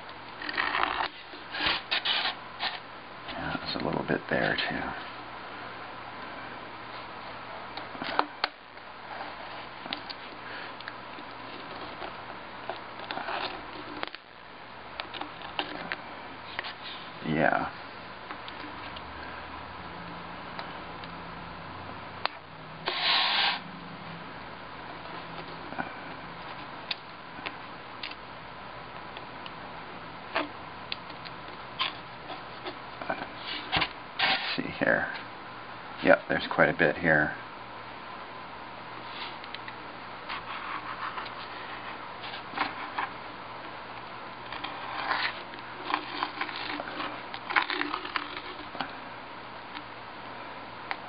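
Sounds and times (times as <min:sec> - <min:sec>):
razor blade scraping glass: 0:22.8 - 0:23.6
steady hiss: 0:22.8 - 0:23.7.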